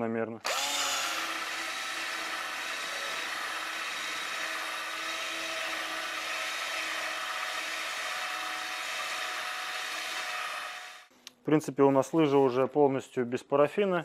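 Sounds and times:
power drill spinning brush: 0.4s - 11.1s.

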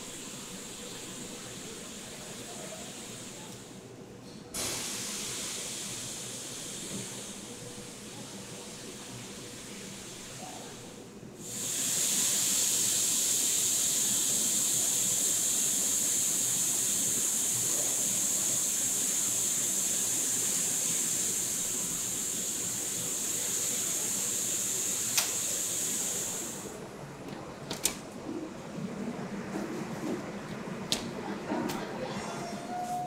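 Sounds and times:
high-pitched hiss from factory equipment: 4.6s - 26.8s.

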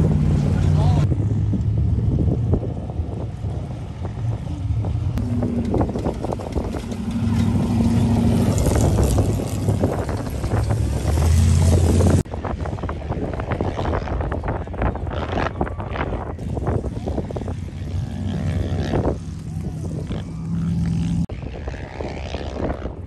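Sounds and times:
sand car engines driving past: 0.0s - 12.2s
wind buffeting microphone: 0.0s - 23.0s.

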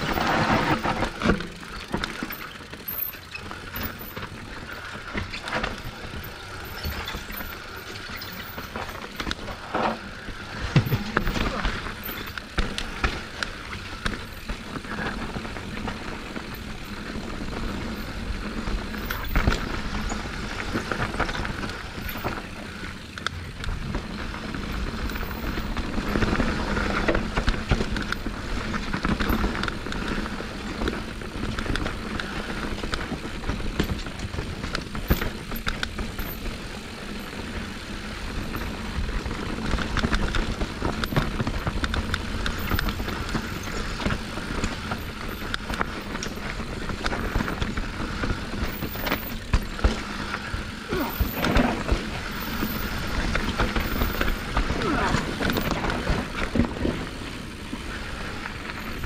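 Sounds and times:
tyres rolling over rock: 0.0s - 13.5s, 39.8s - 59.0s
bike knocks and rattles: 0.0s - 59.0s.

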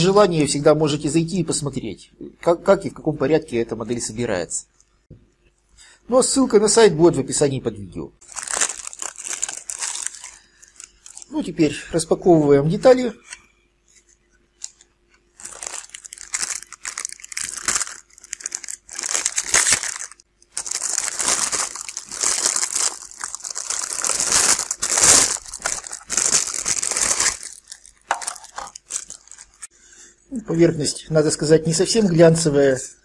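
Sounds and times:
plastic bags crinkling: 8.2s - 11.4s, 14.6s - 29.7s.

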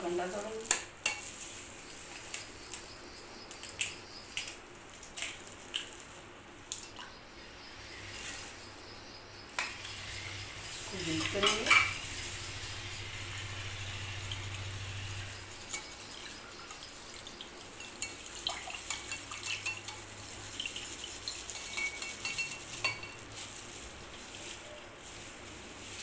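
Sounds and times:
whisk clinking against glass bowl: 17.8s - 23.3s.

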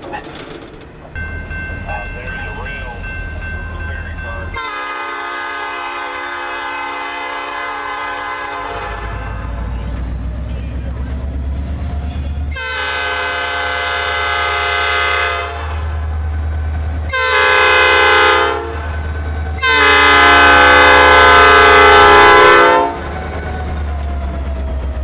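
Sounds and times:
diesel locomotives rumbling: 0.0s - 25.0s
locomotive air horn blasts: 4.6s - 9.5s, 12.5s - 15.9s, 17.1s - 18.9s, 19.6s - 23.1s.

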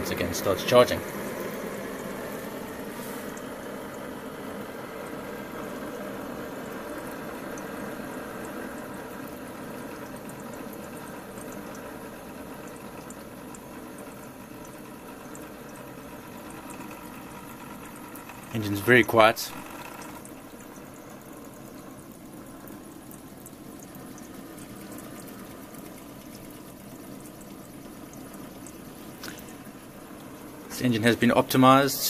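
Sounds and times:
engine running with whirr: 0.0s - 31.8s.

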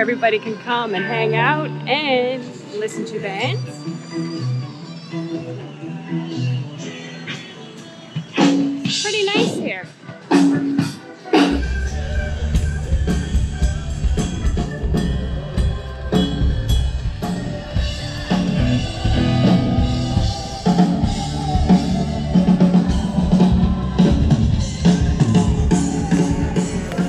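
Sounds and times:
band music: 0.0s - 27.0s
drum kit beat: 8.2s - 27.0s
bass line: 11.5s - 27.0s.

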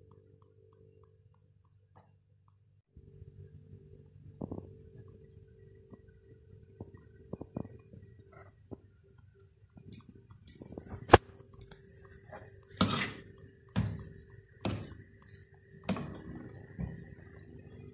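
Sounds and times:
faint steady hum: 0.0s - 17.9s
spoon scraping pan: 10.5s - 17.4s.

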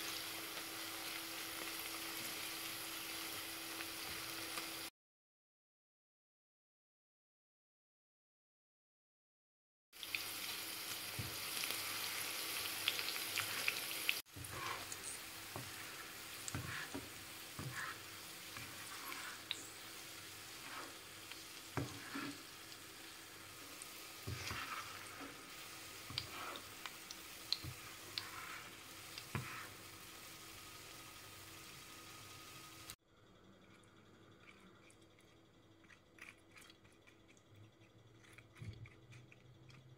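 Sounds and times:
onions sizzling in oil: 0.0s - 4.9s, 10.0s - 33.0s.

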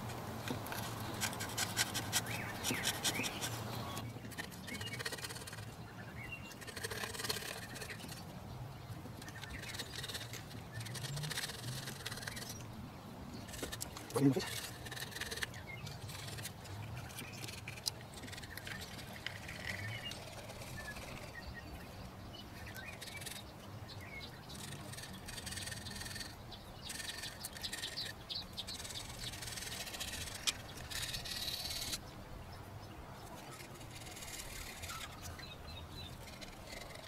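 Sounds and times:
scraper blade scratching metal: 0.7s - 3.6s, 24.5s - 32.0s, 33.5s - 35.4s.

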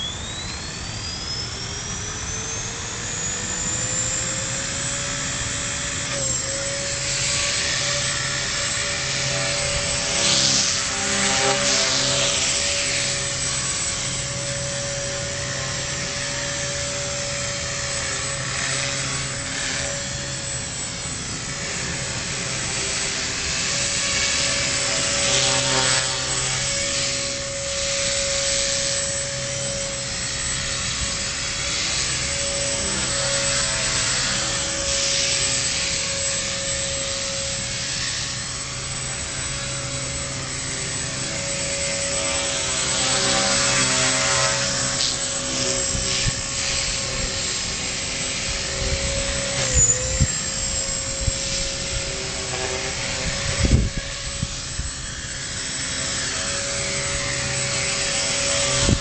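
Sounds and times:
rc helicopter motor whine: 0.0s - 59.0s
hiss: 20.9s - 59.0s.

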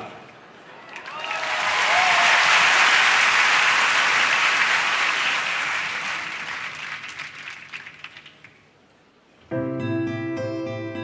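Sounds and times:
audience applauding: 0.8s - 8.7s.

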